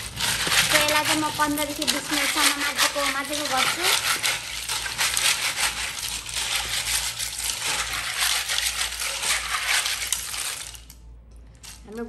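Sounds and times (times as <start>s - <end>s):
snail shells clattering in metal pot: 0.0s - 12.0s.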